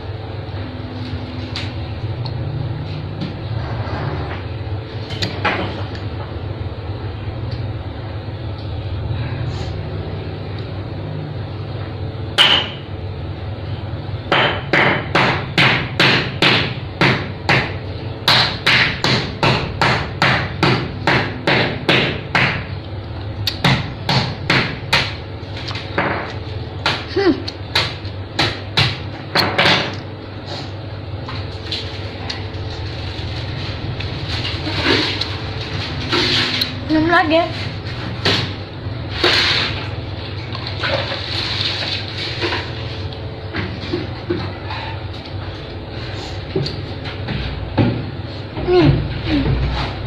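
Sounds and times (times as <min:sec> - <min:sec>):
steady low hum: 0:00.0 - 0:50.0.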